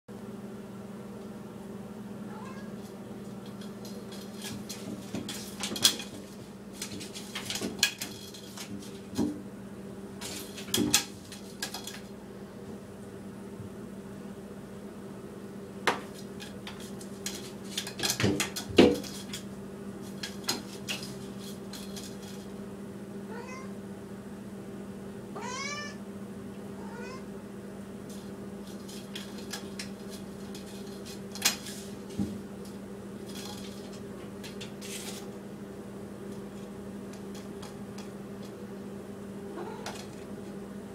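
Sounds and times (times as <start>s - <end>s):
steady low hum: 0.1s - 40.9s
cat meowing: 2.3s - 2.8s, 23.3s - 23.8s, 25.4s - 26.0s, 26.8s - 27.3s, 39.5s - 39.9s.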